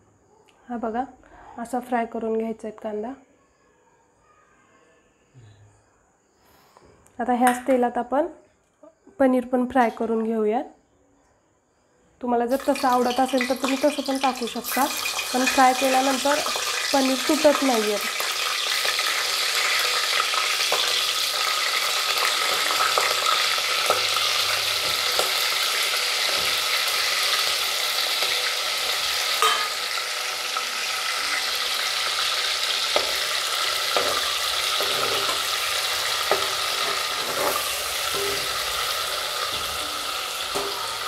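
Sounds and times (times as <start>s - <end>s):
cheese cubes sizzling in hot oil: 12.5s - 41.0s.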